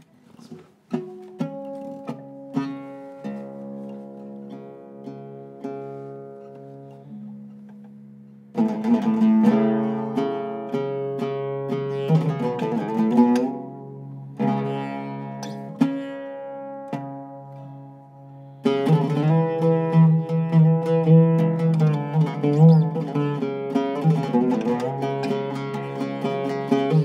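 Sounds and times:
oud plucked notes: 0.0s - 27.0s.

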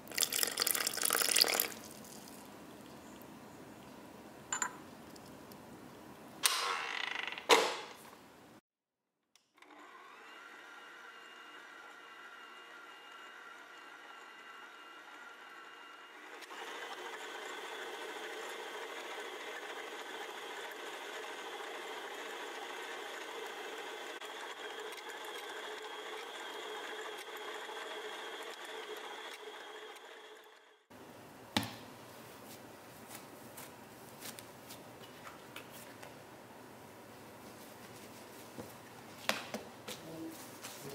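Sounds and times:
stand mixer motor whine: 9.6s - 30.9s.

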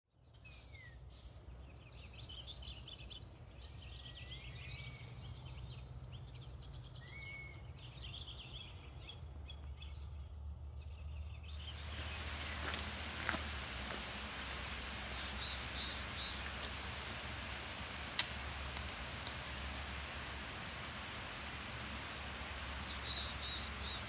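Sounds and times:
songbirds chirping and trilling: 0.2s - 24.0s
steady low rumble: 10.0s - 24.0s
steady hiss: 11.5s - 24.0s.

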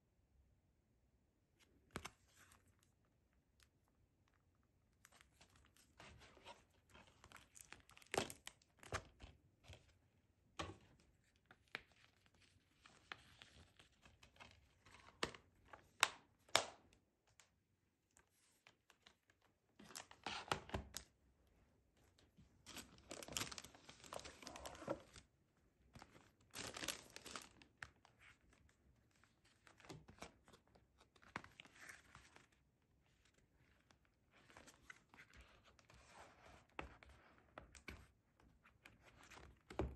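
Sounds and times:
plastic and cardboard crinkling: 22.7s - 25.3s, 25.9s - 33.7s.

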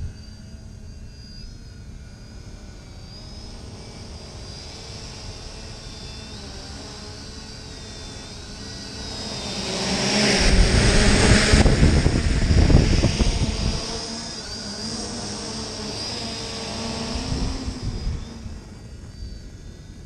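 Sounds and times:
drone propellers whining: 0.0s - 20.0s
rotor downwash rumble on microphone: 9.9s - 14.6s, 16.2s - 18.8s.

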